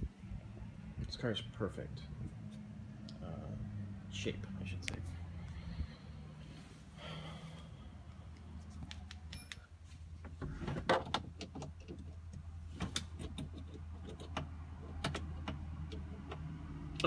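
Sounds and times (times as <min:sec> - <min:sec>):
steady low hum: 0:00.0 - 0:10.2
clicks knocks and rustles in car: 0:10.2 - 0:16.5.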